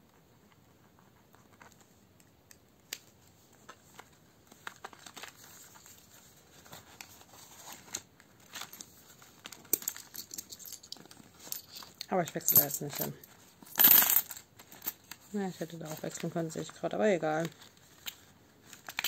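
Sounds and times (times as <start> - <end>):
plastic pages rustling and crinkling: 0.2 - 10.2, 14.3 - 19.0
coins being handled: 9.6 - 15.1.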